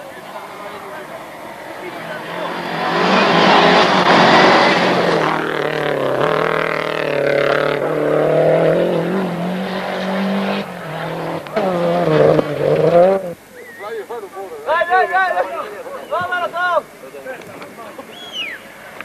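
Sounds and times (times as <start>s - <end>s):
rally car engine: 0.0s - 13.4s.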